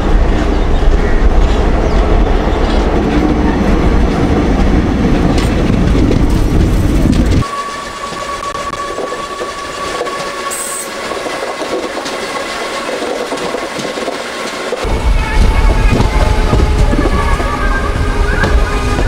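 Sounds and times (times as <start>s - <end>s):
train rolling on track: 0.0s - 19.0s
deep loud rumble: 14.8s - 19.0s.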